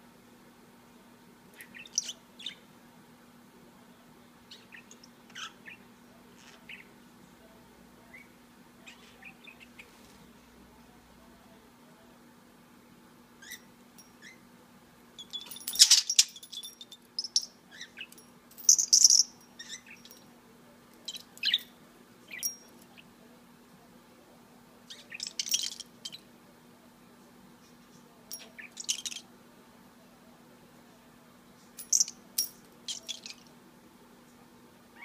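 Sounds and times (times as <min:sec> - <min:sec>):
small metal bell clinking: 0:15.2 - 0:17.5, 0:22.3 - 0:22.8, 0:31.8 - 0:33.4.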